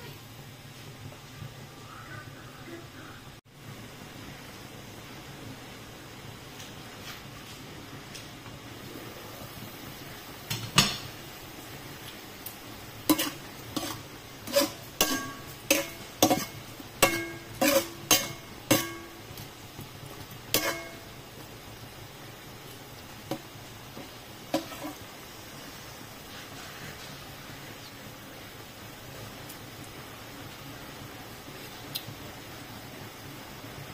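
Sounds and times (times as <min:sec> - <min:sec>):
faint steady hiss: 0:00.0 - 0:33.9
ladle scraping wok: 0:12.9 - 0:19.4, 0:20.2 - 0:21.2, 0:23.3 - 0:25.1
metal ladle knocking on wok: 0:15.0 - 0:19.2.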